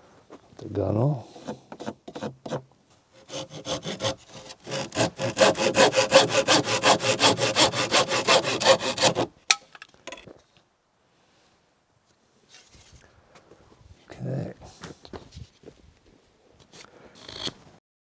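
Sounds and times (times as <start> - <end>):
hand saw cutting wood: 1.3 - 9.3.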